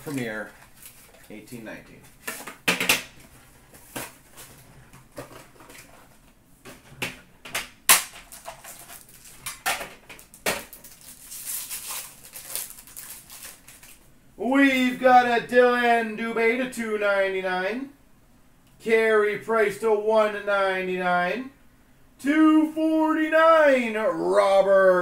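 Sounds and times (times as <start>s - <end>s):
plastic wrapper crinkling: 0.0s - 1.5s, 8.2s - 14.1s.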